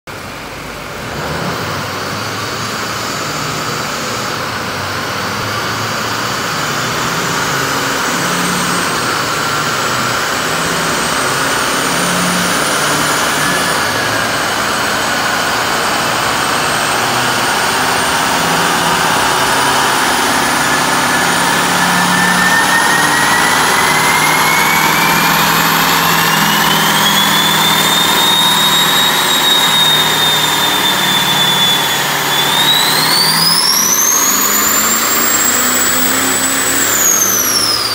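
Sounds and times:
diesel engine running under load: 0.1 - 37.9
turbo whistle rising in pitch: 6.0 - 37.9.

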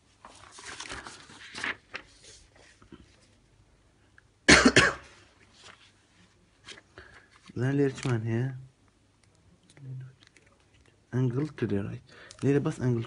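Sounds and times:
paper pages rustling: 0.1 - 3.4, 5.2 - 8.6, 9.2 - 13.0
person coughing: 4.5 - 5.2.

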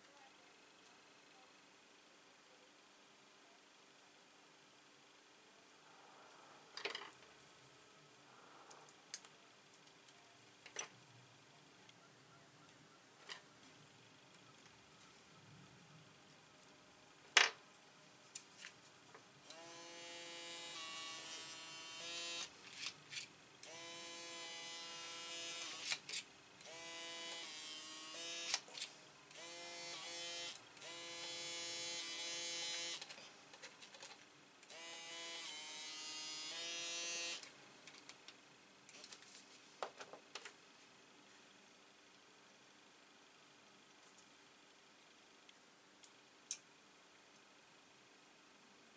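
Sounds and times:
small electric tool buzzing: 19.4 - 33.2, 34.6 - 37.5.

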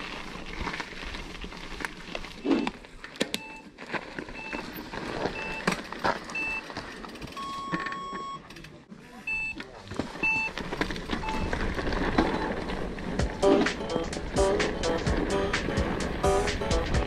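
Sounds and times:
rustling: 0.0 - 7.8, 9.8 - 17.0
countdown beeps: 9.3 - 9.6.

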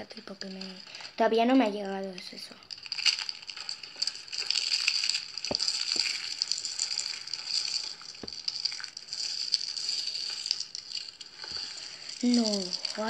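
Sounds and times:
soap shavings crushed between fingers: 2.6 - 13.0.

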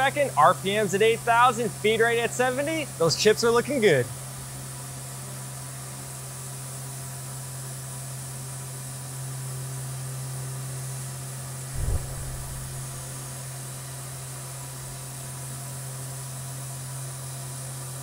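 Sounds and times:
low thump: 11.8 - 13.3.

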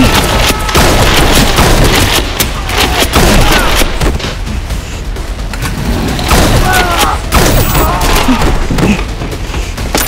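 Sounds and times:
rapid gunfire: 0.0 - 4.2.

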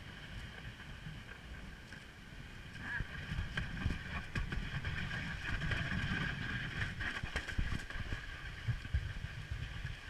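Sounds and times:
toboggan runners scraping asphalt: 2.8 - 10.0.

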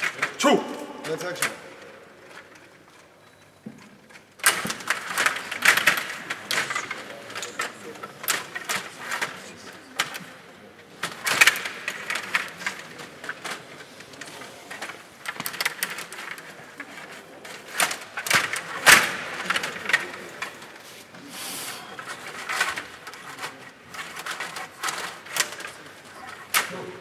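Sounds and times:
plastic figures and puck clacking: 1.0 - 27.0.

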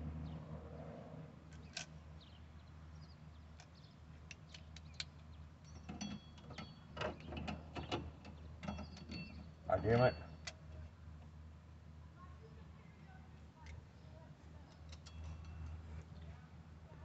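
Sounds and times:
hand tools tapping metal: 5.7 - 8.0.

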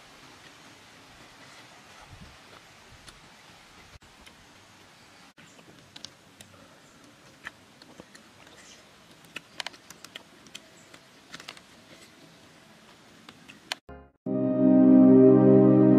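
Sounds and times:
clicks and crackles of eating: 5.5 - 12.1.

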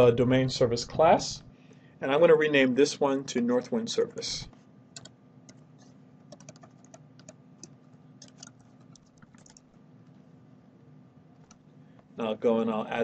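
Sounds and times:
keyboard typing clicks: 5.0 - 5.6, 6.3 - 9.7.

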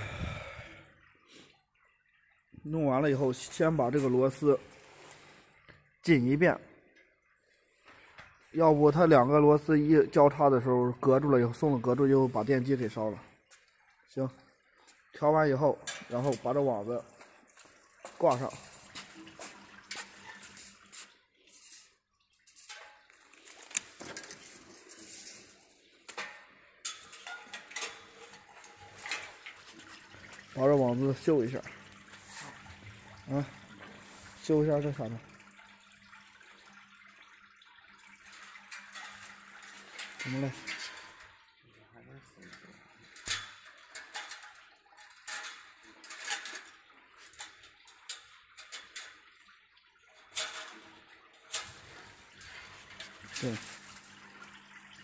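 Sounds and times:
wire mesh clinking on metal frame: 18.1 - 32.7, 38.2 - 41.4, 42.5 - 49.4, 50.2 - 54.8.

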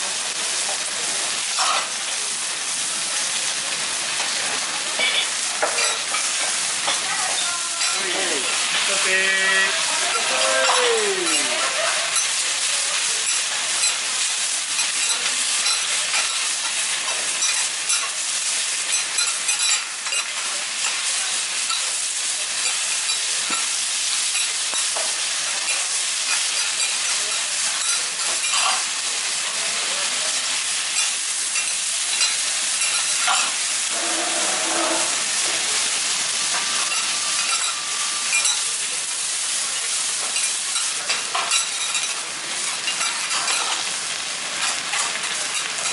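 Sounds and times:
spinach sizzling on griddle: 0.0 - 45.9
metal spatulas scraping griddle: 32.1 - 35.8.

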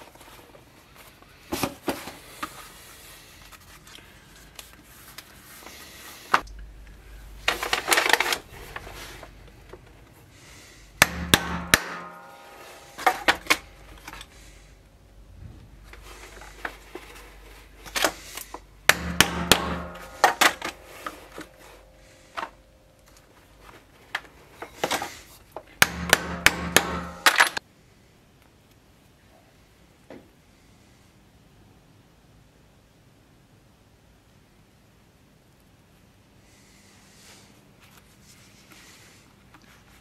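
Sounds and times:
hammer striking chisel through leather: 11.0 - 13.6, 18.9 - 20.8, 25.8 - 27.4.

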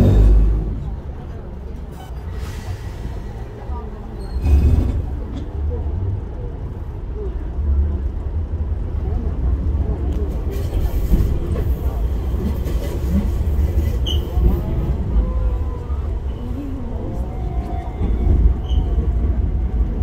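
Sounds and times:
electric train rumbling on track: 0.0 - 20.0.

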